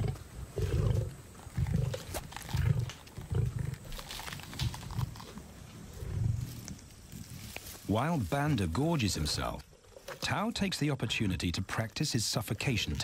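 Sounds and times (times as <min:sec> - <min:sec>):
lions growling: 0:00.0 - 0:04.1
crackling of feeding: 0:00.0 - 0:13.0.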